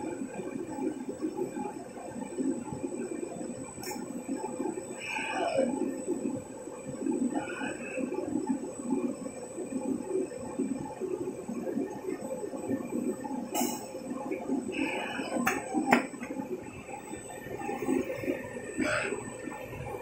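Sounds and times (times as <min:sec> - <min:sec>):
thin high whine: 0:13.4 - 0:20.0.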